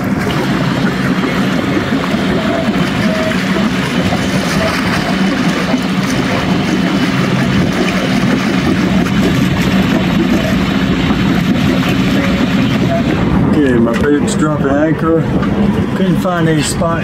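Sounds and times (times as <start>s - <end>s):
wind rushing: 0.0s - 16.0s
boat diesel engine running: 0.0s - 17.0s
water rushing: 0.0s - 17.0s.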